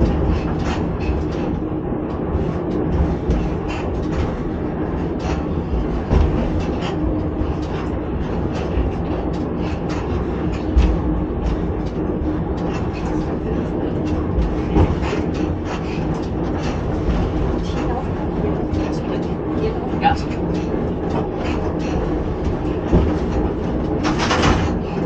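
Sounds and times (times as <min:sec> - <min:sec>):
railcar rumble and hum: 0:00.0 - 0:25.0
wheels clicking over rails: 0:00.0 - 0:25.0.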